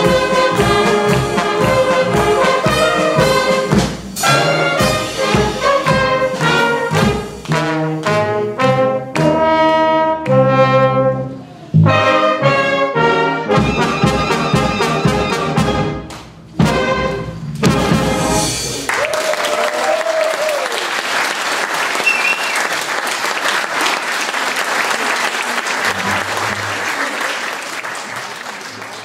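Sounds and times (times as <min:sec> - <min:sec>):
brass and wind band playing: 0:00.0 - 0:18.8
applause: 0:18.8 - 0:29.0.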